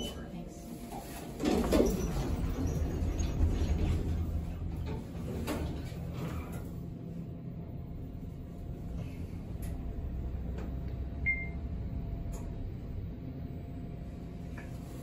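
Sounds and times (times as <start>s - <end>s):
elevator doors sliding shut: 1.3s - 6.8s
low steady hum: 3.5s - 15.0s.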